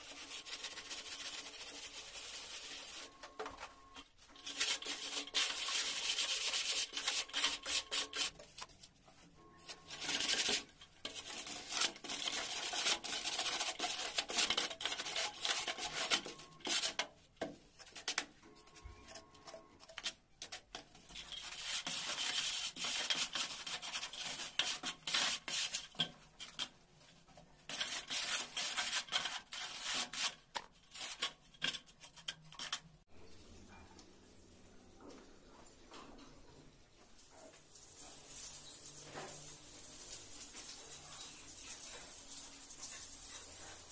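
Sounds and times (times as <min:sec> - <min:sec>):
metal straightedge scraping mortar: 0:04.3 - 0:08.5, 0:09.6 - 0:17.1, 0:17.9 - 0:26.8, 0:27.7 - 0:33.0.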